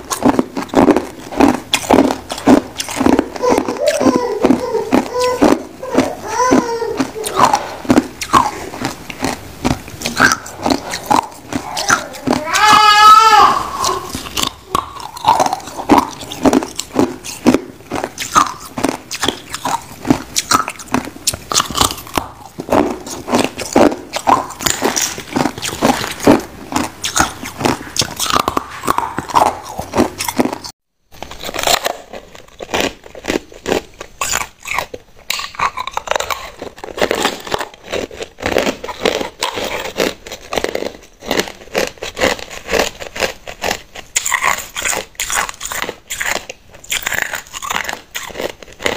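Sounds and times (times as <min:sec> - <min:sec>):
ice crunching between teeth: 0:00.0 - 0:48.9.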